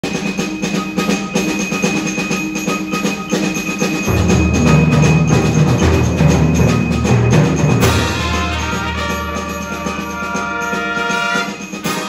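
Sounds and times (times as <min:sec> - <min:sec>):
percussion patter: 0:00.0 - 0:12.0
symphonic band playing: 0:03.6 - 0:12.0.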